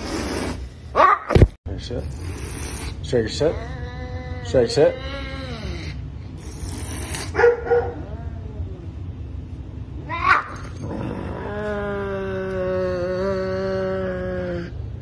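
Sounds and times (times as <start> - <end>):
cat hissing: 0.0 - 0.8, 2.0 - 8.4
cat moaning: 2.2 - 9.2, 10.1 - 14.9.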